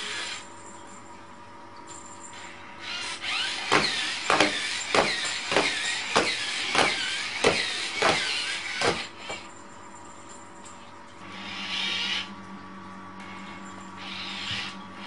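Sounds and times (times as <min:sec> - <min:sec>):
small robot motors whirring: 0:02.8 - 0:09.0.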